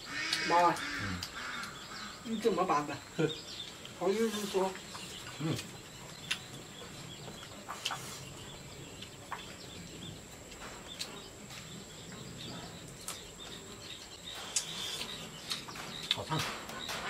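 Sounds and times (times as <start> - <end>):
faint bird chirps: 0.0 - 17.0.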